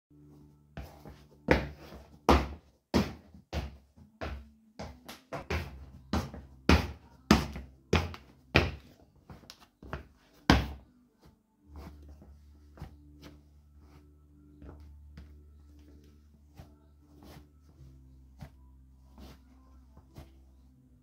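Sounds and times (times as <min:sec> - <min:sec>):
loose shoes slapping on floor: 0:01.5 - 0:10.8.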